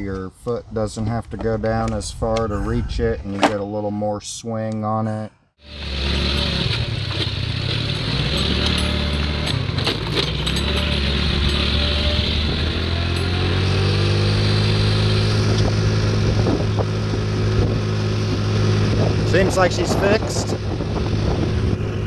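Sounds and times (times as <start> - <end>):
scooter engine running: 5.6 - 22.0.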